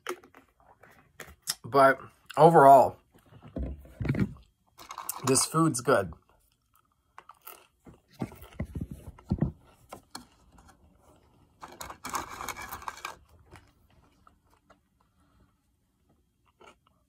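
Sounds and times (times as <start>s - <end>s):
paper packaging rustling: 11.6s - 13.8s.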